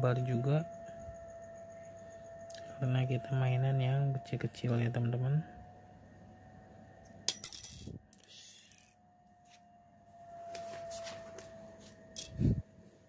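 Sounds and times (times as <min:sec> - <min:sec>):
small parts clicking and rustling: 0:07.3 - 0:09.0.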